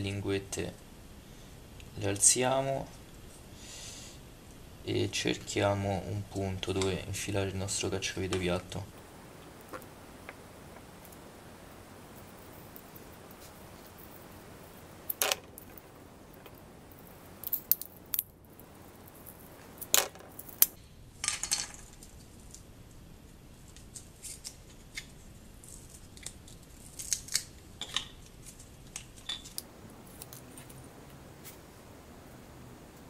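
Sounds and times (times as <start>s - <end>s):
light handling ticks: 9.4s - 20.8s.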